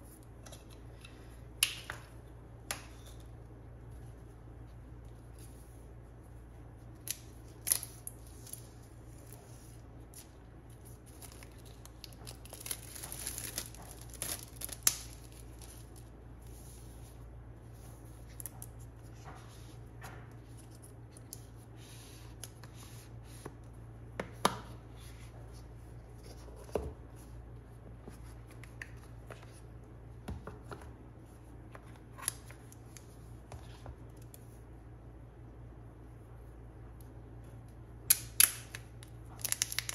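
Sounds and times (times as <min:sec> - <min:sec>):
paper and plastic rustling: 0:08.1 - 0:17.0.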